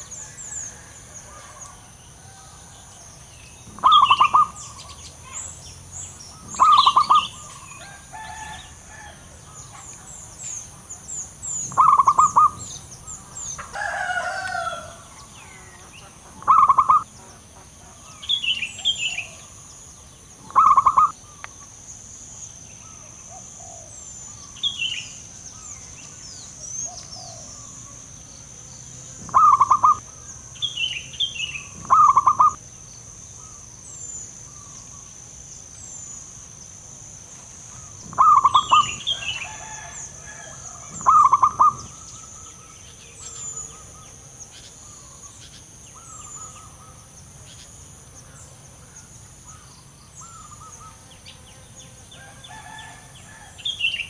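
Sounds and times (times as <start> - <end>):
small birds chirping: 0.0 - 54.0
dove cooing: 3.7 - 5.4, 6.3 - 9.9, 11.7 - 12.7, 13.6 - 17.2, 20.4 - 21.2, 29.2 - 30.2, 31.6 - 32.6, 37.7 - 42.6.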